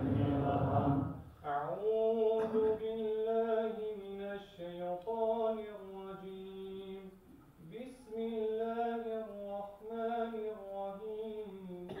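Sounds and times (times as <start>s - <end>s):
congregation chanting: 0.0s - 2.8s
person singing religious chant: 0.0s - 7.1s, 7.7s - 12.0s.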